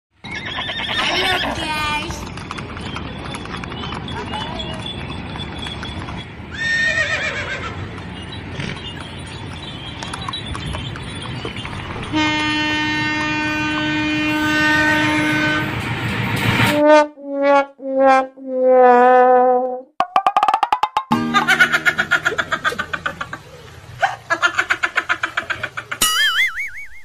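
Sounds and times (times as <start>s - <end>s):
train rumbling: 0.8s - 17.1s
locomotive horn blasts: 12.1s - 15.9s, 16.7s - 19.5s.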